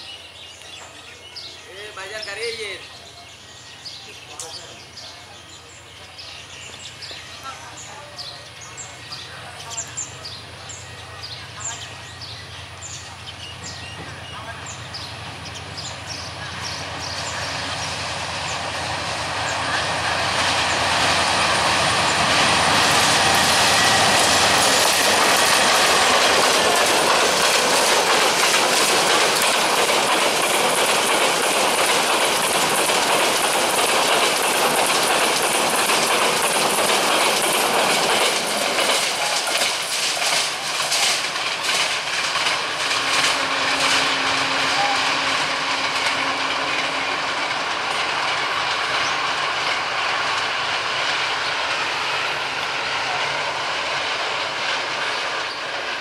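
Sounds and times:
train passing at speed: 0.0s - 56.0s
wheels clattering over rail joints: 21.0s - 51.3s.

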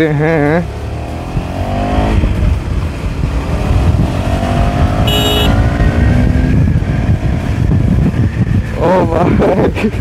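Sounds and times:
motorcycle engine accelerating: 0.2s - 9.3s
wind rumbling on microphone: 1.1s - 10.0s
short high beep: 5.0s - 5.6s.

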